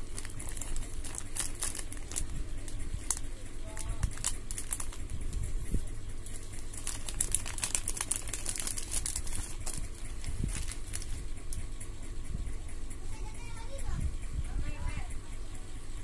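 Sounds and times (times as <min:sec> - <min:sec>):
plastic bag crinkling: 0:00.0 - 0:05.5, 0:06.2 - 0:11.6
low steady hum: 0:00.0 - 0:16.0.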